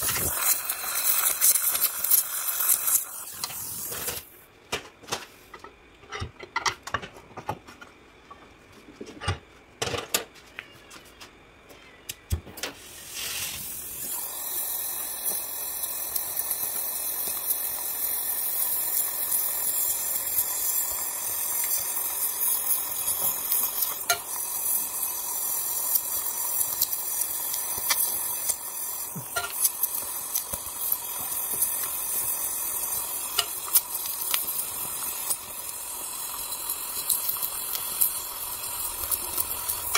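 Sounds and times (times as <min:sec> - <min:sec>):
welding torch flame hissing: 0:00.0 - 0:04.5, 0:12.7 - 0:39.9.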